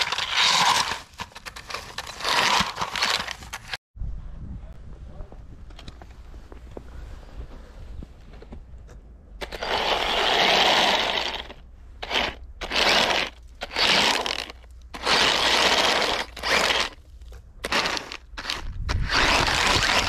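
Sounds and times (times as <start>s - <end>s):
toy tank tracks crunching snow: 0.0s - 3.8s, 9.4s - 20.0s.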